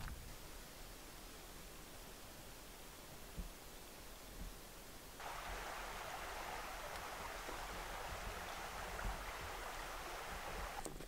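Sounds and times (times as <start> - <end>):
forest stream rushing: 5.2 - 11.0.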